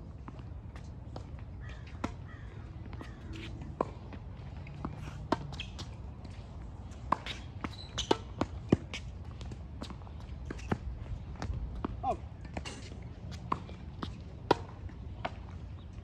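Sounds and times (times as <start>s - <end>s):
tennis ball bouncing on court: 2.8s - 6.4s, 7.0s - 12.6s, 13.2s - 15.6s.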